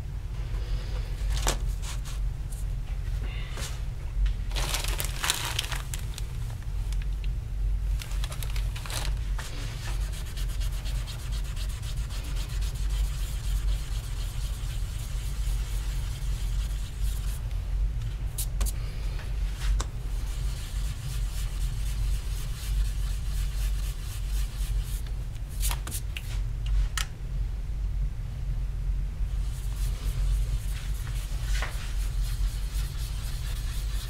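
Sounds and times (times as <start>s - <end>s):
low hum: 0.0s - 25.6s.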